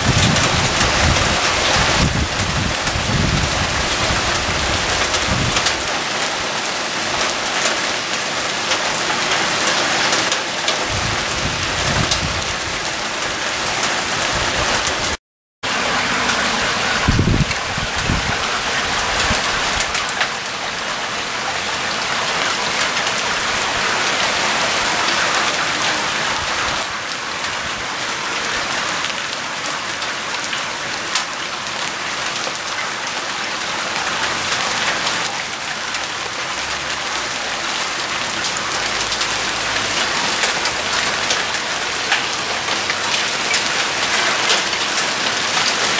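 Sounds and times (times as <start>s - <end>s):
heavy rain and hail on leaves: 0.0s - 45.9s.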